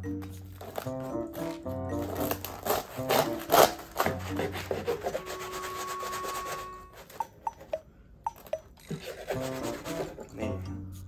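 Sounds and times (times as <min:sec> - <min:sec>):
knife sawing through bread crust: 0:02.6 - 0:06.6, 0:09.0 - 0:10.2.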